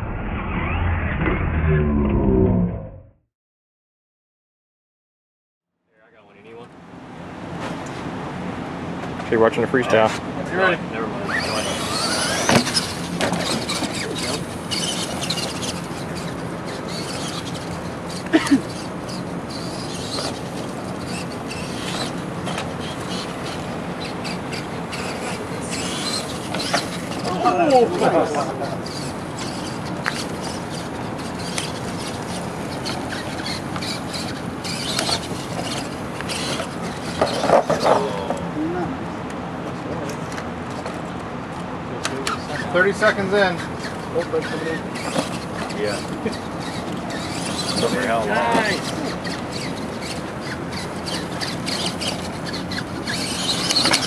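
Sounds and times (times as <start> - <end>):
toy truck motor whining: 11.2 - 38.4, 43.8 - 54.0.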